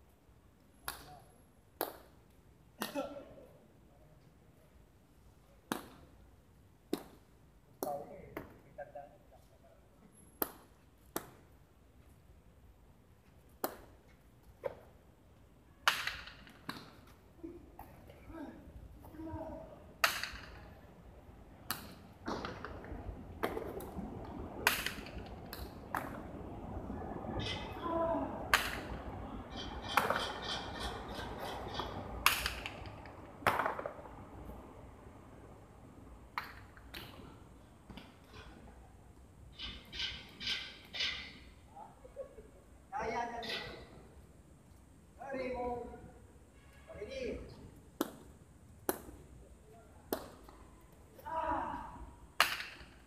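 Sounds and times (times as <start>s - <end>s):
ball cracking against wall: 32.2s - 34.0s.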